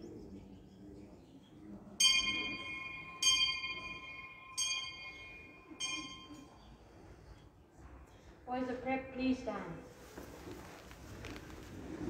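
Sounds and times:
school bell ringing: 0:02.0 - 0:06.9.

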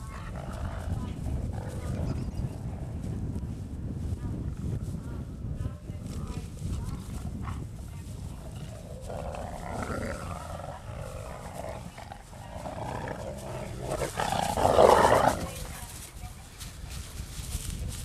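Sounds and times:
wolves growling: 0:00.0 - 0:02.7, 0:07.2 - 0:15.8.

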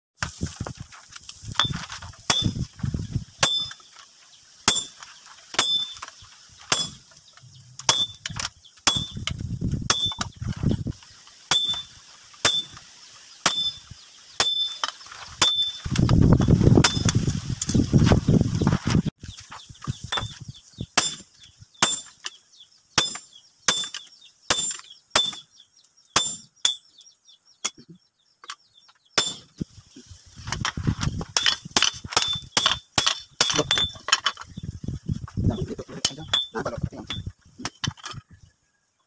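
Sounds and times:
hammer striking chisel on metal: 0:01.6 - 0:02.6, 0:03.4 - 0:03.8, 0:04.7 - 0:05.0, 0:05.6 - 0:06.0, 0:06.7 - 0:07.0, 0:07.9 - 0:09.3, 0:09.9 - 0:10.3, 0:11.5 - 0:12.8, 0:13.4 - 0:13.8, 0:14.4 - 0:15.8, 0:21.0 - 0:21.2, 0:23.0 - 0:25.5, 0:26.2 - 0:26.9, 0:29.2 - 0:29.5, 0:31.4 - 0:34.1.

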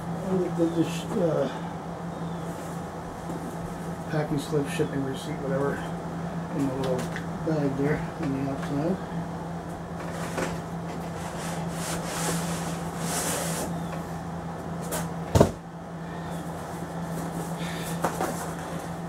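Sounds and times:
cardboard rubbing and scraping: 0:10.0 - 0:13.8.

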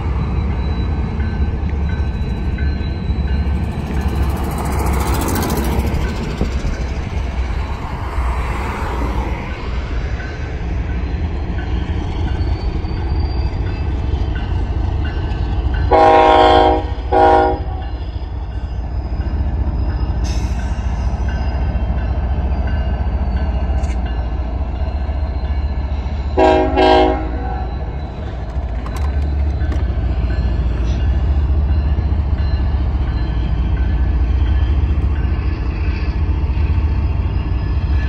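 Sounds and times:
locomotive rumble: 0:00.0 - 0:38.0
locomotive air horn blasts: 0:15.9 - 0:17.8, 0:26.4 - 0:27.7.

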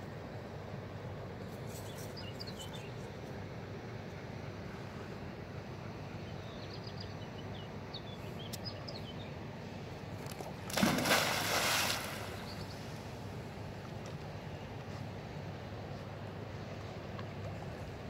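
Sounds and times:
dog splashing into water: 0:10.3 - 0:12.5
churning water: 0:10.3 - 0:13.2.

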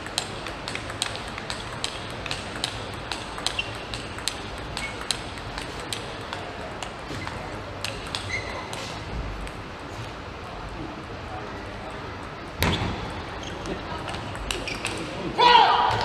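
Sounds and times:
table tennis balls clicking: 0:00.0 - 0:09.7, 0:13.3 - 0:15.3
low hum of an arena hall: 0:00.0 - 0:16.0
short squeak: 0:08.2 - 0:08.7.

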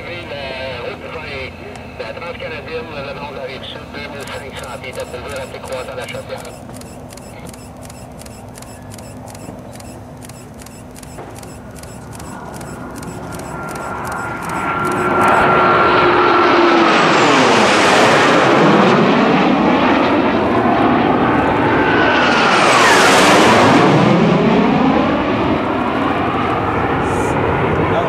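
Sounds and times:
jet fighters flying past: 0:11.1 - 0:28.0.

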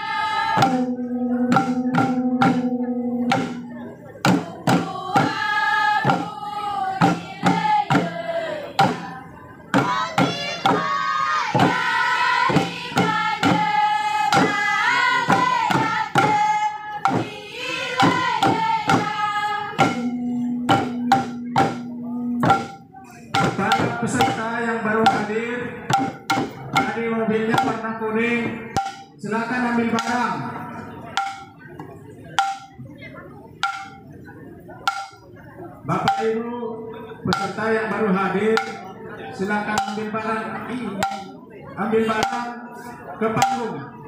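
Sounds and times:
group singing: 0:00.0 - 0:22.8
hand drums beating: 0:00.5 - 0:27.8, 0:28.4 - 0:29.2, 0:29.9 - 0:30.4, 0:31.0 - 0:32.9, 0:33.6 - 0:34.2, 0:34.8 - 0:35.4, 0:36.0 - 0:36.4, 0:37.3 - 0:39.0, 0:39.7 - 0:40.2, 0:40.9 - 0:41.5, 0:42.2 - 0:42.5, 0:43.4 - 0:43.7.

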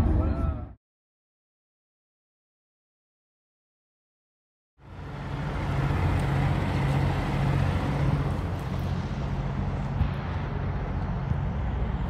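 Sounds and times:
road traffic rumble: 0:04.8 - 0:12.0.

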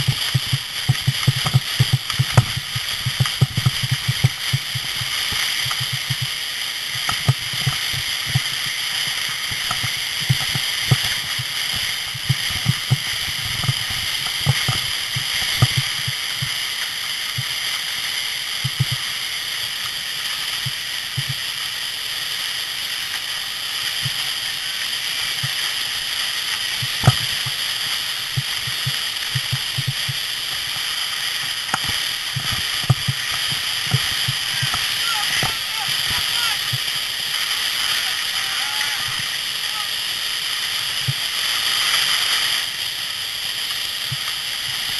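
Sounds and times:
sled knocks and bumps: 0:00.0 - 0:06.3
sled hissing over snow: 0:00.0 - 0:44.9.

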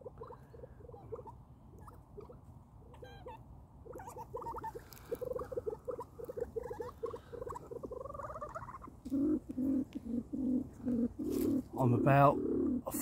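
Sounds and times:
louder lower bird calls: 0:00.0 - 0:12.9
pheasant clucking: 0:00.0 - 0:13.0.

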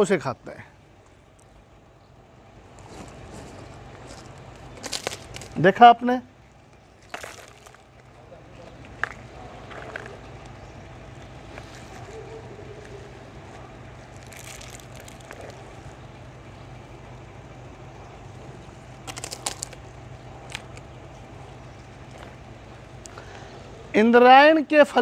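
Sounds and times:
low steady hum: 0:00.0 - 0:25.0
cow crunching dried fruit: 0:02.7 - 0:05.8, 0:06.5 - 0:16.3, 0:18.4 - 0:23.3.

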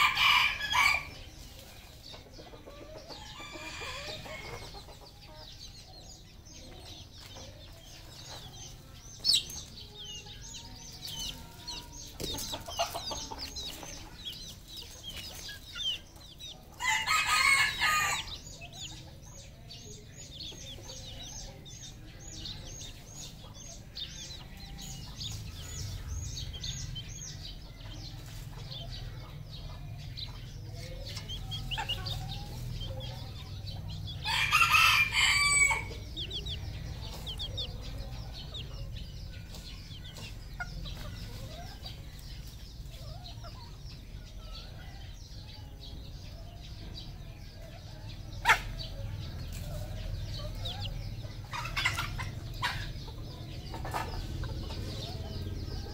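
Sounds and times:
rooster crowing: 0:00.0 - 0:01.1, 0:16.8 - 0:18.4, 0:34.2 - 0:36.0.

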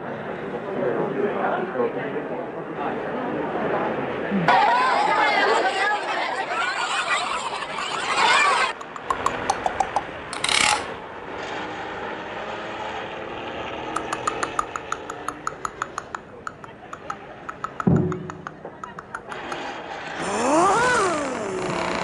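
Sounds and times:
crowd babble: 0:00.0 - 0:10.8, 0:14.0 - 0:22.0
sharp clicks: 0:08.7 - 0:10.9, 0:14.0 - 0:19.7
rapid ticking: 0:14.0 - 0:19.7.

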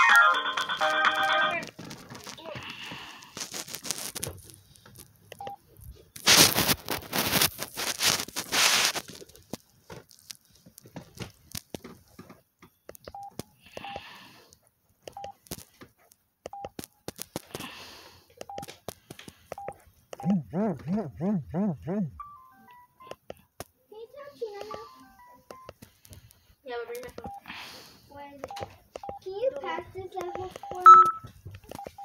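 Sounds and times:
phone keypad beeps: 0:13.1 - 0:14.0, 0:24.6 - 0:25.8, 0:27.2 - 0:27.5, 0:30.2 - 0:32.0.

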